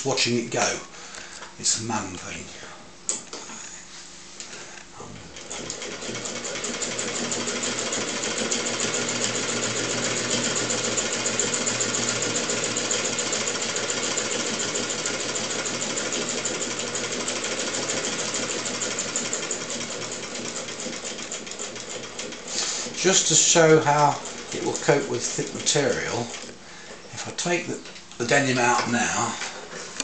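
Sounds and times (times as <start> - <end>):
sewing machine clatter: 5.4 - 26.5.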